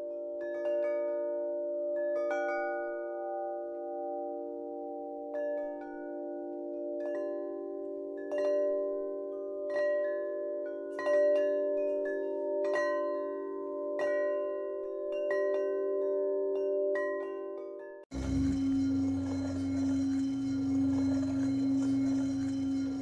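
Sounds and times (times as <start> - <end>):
low drone: 18.1 - 23.0
ringing struck chimes: 18.1 - 23.0.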